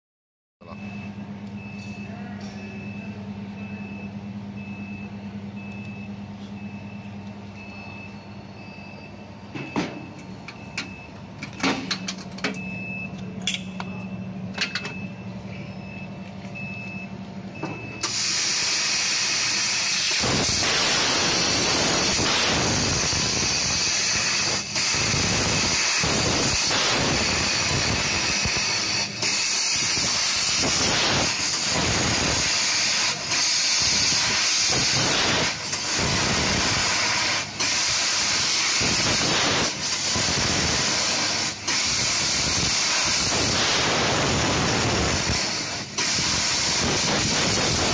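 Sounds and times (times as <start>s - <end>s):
short beeps: 0.6s - 18.1s
machine hum: 0.7s - 47.9s
gas hissing from laser nozzle: 18.0s - 47.9s.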